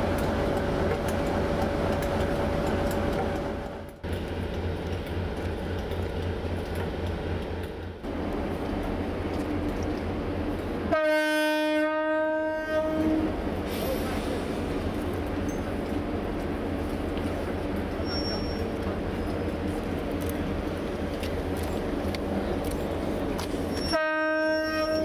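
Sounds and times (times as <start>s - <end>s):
train horn: 10.9s - 13.4s, 23.8s - 25.0s.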